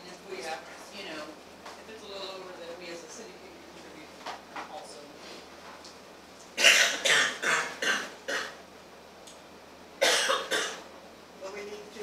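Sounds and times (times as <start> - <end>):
person coughing: 6.6 - 8.6, 10.0 - 10.8.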